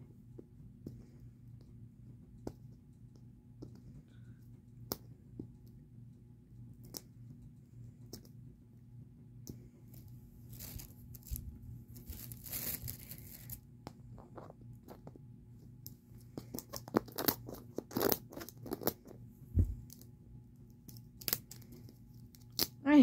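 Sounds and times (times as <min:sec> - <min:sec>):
plastic crackling: 0:10.5 - 0:13.6
plastic packaging rustling: 0:10.5 - 0:13.6.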